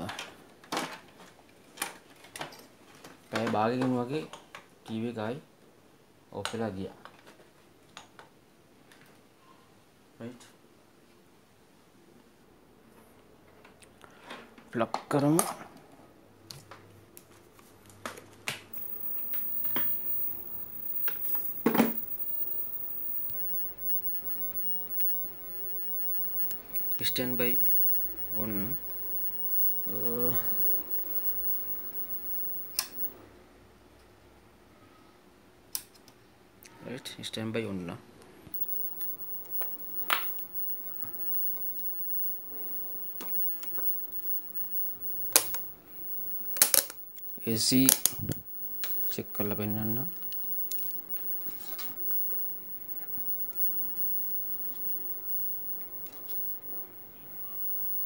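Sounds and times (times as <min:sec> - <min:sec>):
faint steady hum: 0:18.7 - 0:33.1, 0:38.6 - 0:58.0.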